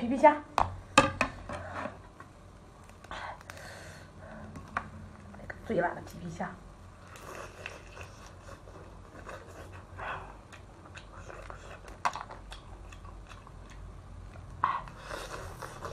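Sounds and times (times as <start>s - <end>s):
chewing: 7.0s - 15.9s.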